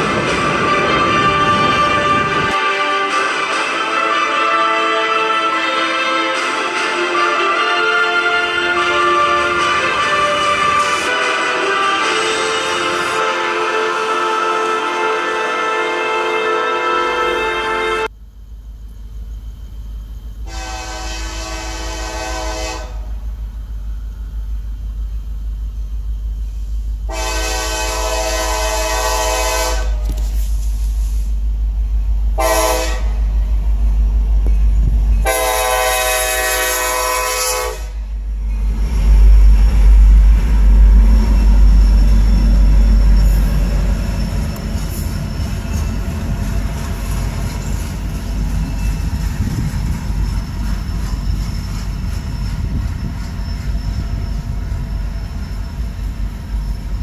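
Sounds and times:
locomotive air horn: 0.0 - 18.1, 20.4 - 23.3, 27.1 - 31.3, 32.4 - 33.3, 35.2 - 38.2
locomotive engine rumble: 17.0 - 57.0
freight cars rolling past: 37.1 - 57.0.

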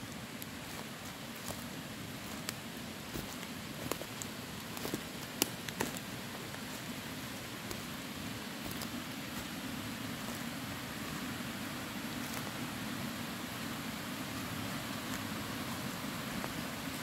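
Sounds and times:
creek water rushing: 0.0 - 17.0.

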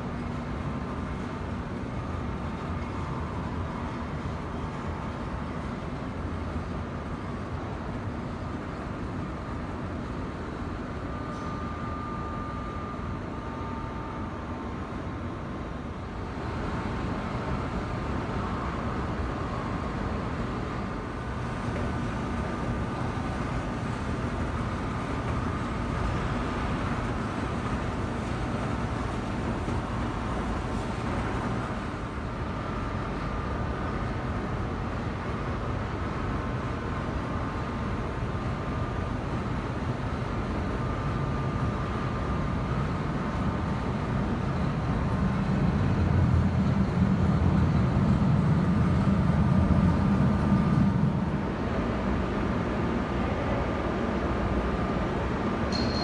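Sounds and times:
machinery hum and rumble: 0.0 - 56.0
faint whining tones: 9.1 - 16.0.

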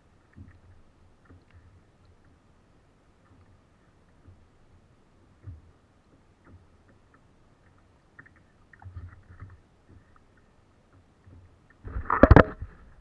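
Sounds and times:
ticks and knocks on plastic kayak: 5.4 - 10.1
camera knocked rumbling bumps: 11.3 - 12.8.

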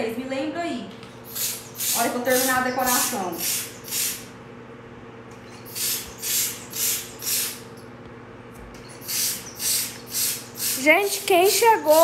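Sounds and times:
paint sprayer hissing: 1.2 - 4.3, 5.7 - 7.8, 9.0 - 12.0.

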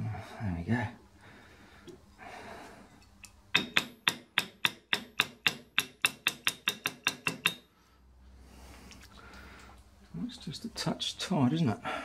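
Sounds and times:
small hammer tapping metal: 3.0 - 7.7.

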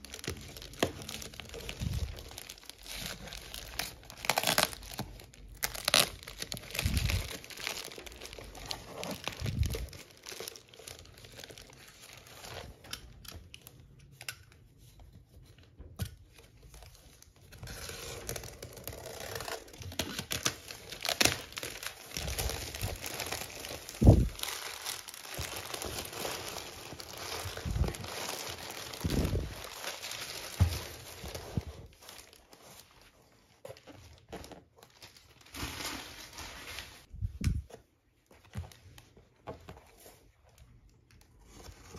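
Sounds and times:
plastic pouch crinkling and tearing: 0.0 - 12.8, 17.7 - 32.6.

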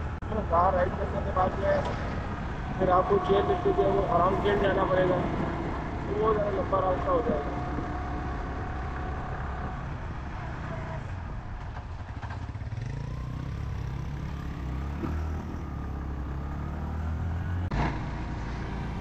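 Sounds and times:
motorcycle engine running: 2.2 - 16.7.

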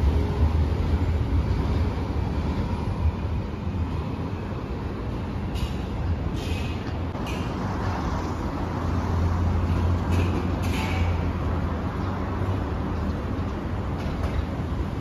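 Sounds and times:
vehicle engines rumbling: 0.0 - 15.0.

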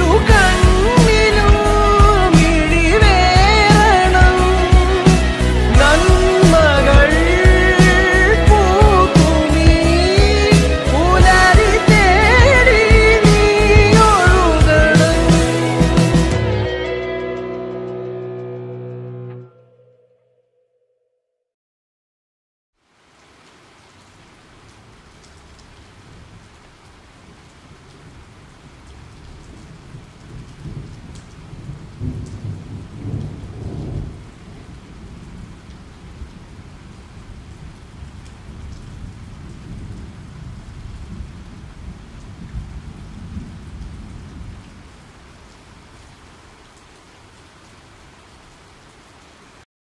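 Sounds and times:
heavy rain: 0.0 - 17.2, 22.8 - 49.7
rolling thunder: 29.0 - 44.9.

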